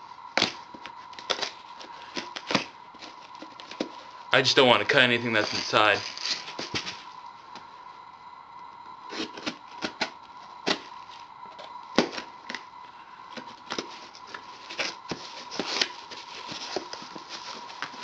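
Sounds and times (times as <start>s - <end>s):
faint high hum: 0.0s - 18.0s
cardboard scratching and tearing: 5.3s - 7.1s, 13.4s - 18.0s.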